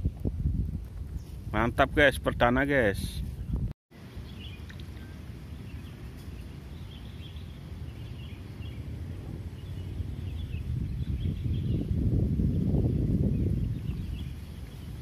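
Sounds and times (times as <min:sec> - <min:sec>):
steady low rumble: 0:03.2 - 0:15.0
faint bird chirps: 0:03.4 - 0:11.9.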